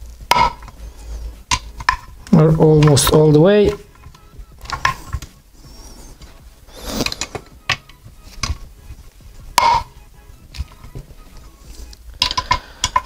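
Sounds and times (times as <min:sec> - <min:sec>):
hand tool clicking on metal: 0:12.2 - 0:13.0.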